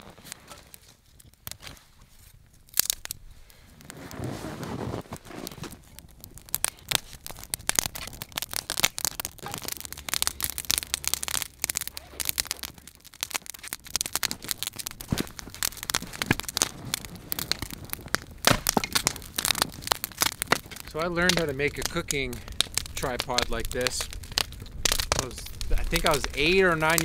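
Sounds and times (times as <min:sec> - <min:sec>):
wood fire crackling and popping: 0:00.0 - 0:27.0.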